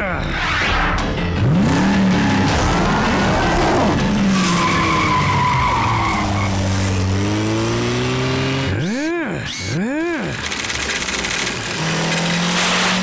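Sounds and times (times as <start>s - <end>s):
tyre squeal: 4.3s - 7.0s
cartoon car engine running: 8.4s - 12.4s.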